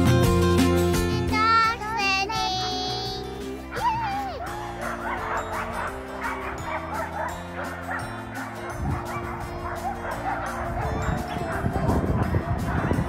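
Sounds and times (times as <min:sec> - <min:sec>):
background music with held notes: 0:00.0 - 0:13.0
dogs yipping whining and barking: 0:03.4 - 0:13.0.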